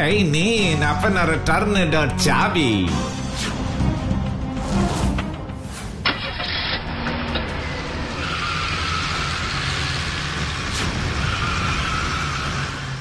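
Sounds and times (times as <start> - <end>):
road noise hiss: 5.6 - 13.0
car pulling away: 5.7 - 13.0
car engine running: 6.0 - 13.0.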